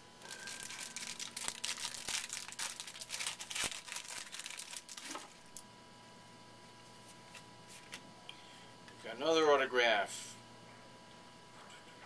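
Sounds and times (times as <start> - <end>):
wrapper tearing and crinkling: 0.2 - 5.6.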